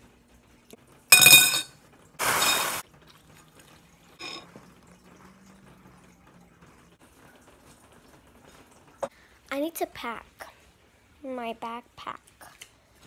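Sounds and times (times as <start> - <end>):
clatter in ceramic bowl: 1.1 - 1.7
small clink: 1.1 - 1.7.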